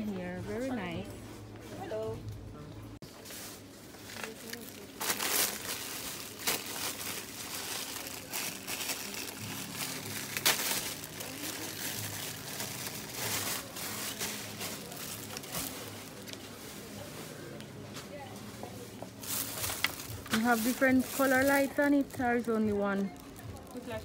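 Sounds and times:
plastic bag crinkling: 4.0s - 16.6s, 19.2s - 24.0s.

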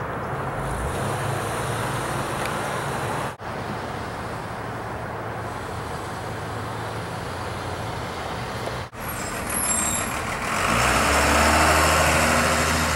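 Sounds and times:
street traffic: 0.0s - 12.9s
high squeal: 9.0s - 10.3s.

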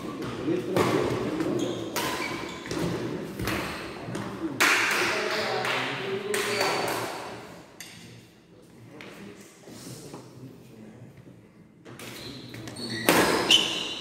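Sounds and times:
badminton rackets hitting shuttlecock: 0.2s - 5.0s.

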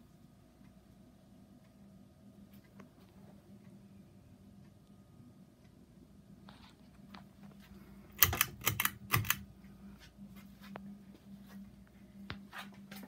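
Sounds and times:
ceiling fan humming: 0.0s - 13.0s
sharp clicks: 8.2s - 9.5s.

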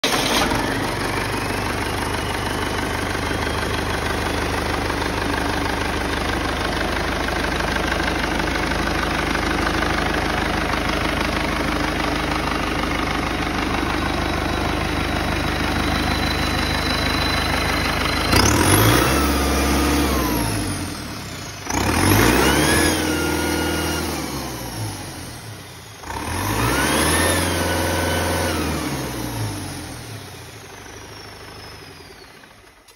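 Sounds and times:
diesel engine revving: 0.0s - 32.3s
high engine whine: 0.0s - 32.9s.

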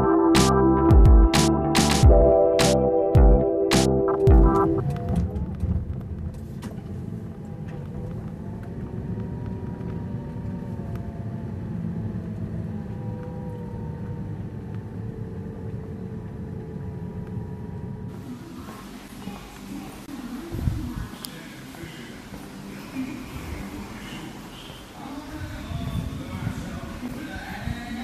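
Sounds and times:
road noise: 3.7s - 28.0s
car engine low rumble: 4.0s - 21.1s.

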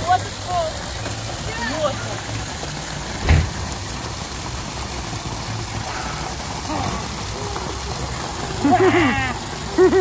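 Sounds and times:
short thump: 3.2s - 3.7s.

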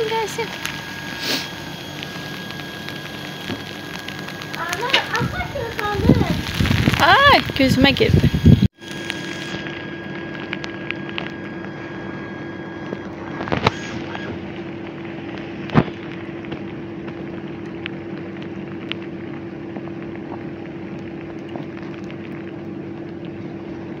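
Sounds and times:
constant hiss: 0.0s - 9.6s
low hum: 0.0s - 24.0s.

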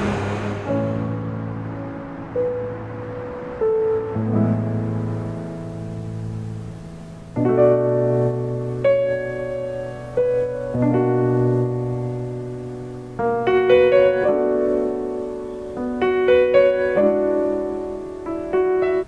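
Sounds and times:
piano chords on keyboard: 0.0s - 19.0s.

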